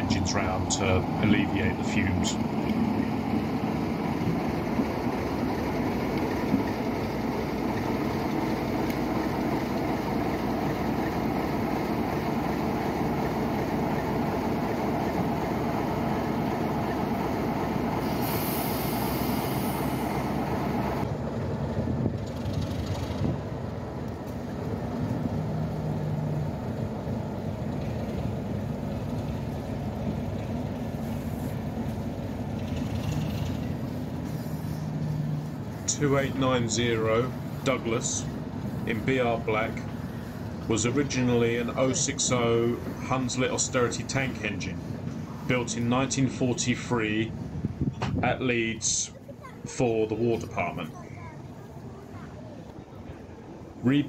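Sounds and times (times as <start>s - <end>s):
diesel locomotive engine running: 0.0s - 54.0s
brief hiss: 18.0s - 20.2s.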